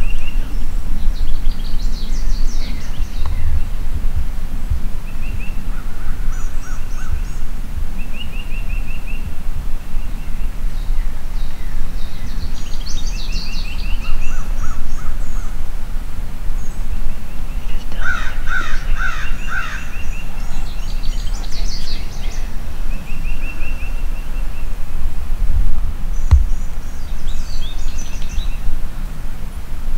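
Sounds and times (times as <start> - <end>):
steady low rumble: 0.0 - 18.0, 19.4 - 29.9
songbirds singing and trilling: 0.0 - 25.4, 26.0 - 29.7
loud bird calls: 5.0 - 15.7, 16.5 - 25.0.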